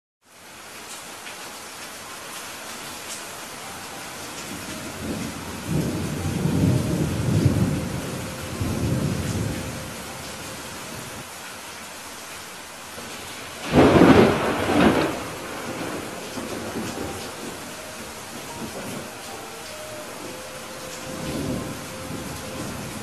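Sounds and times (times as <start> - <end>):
steady rain: 0.2 - 23.0
thunder: 4.8 - 9.8, 13.0 - 19.2.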